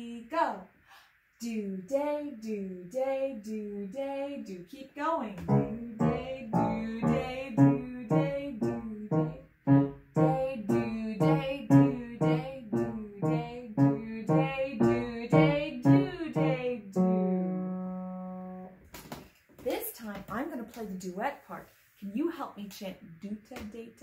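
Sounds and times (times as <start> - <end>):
woman chanting syllables: 1.4 - 17.8
grand piano playing: 5.4 - 18.8.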